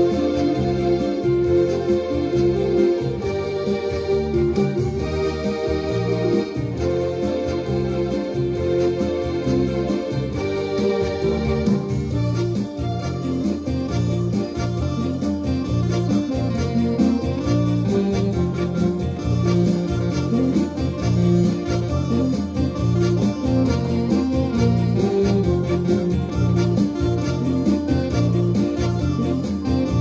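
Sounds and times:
electronic keyboards with organ tone: 0.0s - 30.0s
steady beat: 0.0s - 30.0s
strong bass line: 0.0s - 30.0s.

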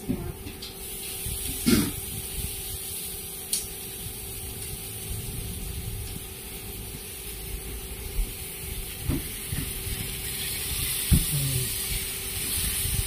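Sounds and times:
steady hiss: 0.6s - 13.0s
low rumble: 4.0s - 8.7s.

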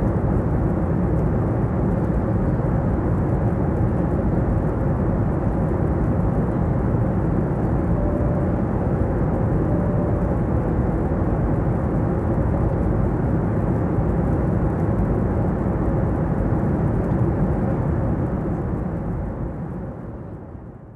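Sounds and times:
jet airliner cabin hum: 0.0s - 20.9s
faint steady tone: 7.7s - 10.8s.

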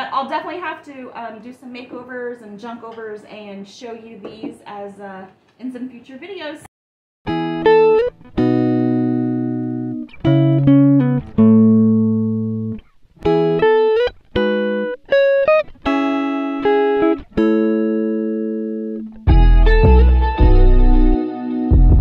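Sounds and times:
plucked guitar music: 7.3s - 22.0s.

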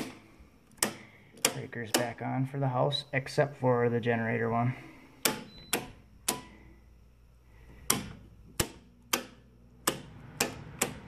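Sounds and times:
circuit breakers snapping on: 0.0s - 2.3s, 5.2s - 6.7s, 7.8s - 11.0s.

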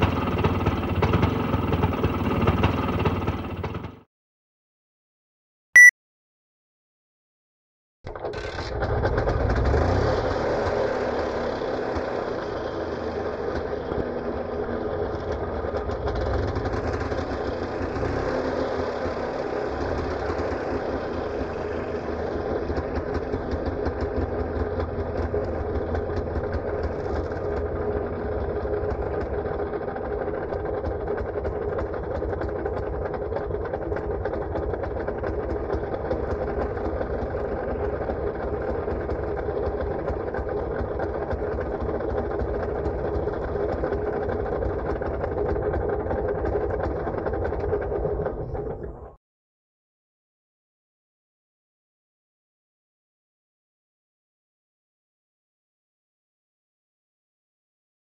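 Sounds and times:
auto rickshaw engine idling: 0.0s - 4.0s, 8.3s - 49.0s.

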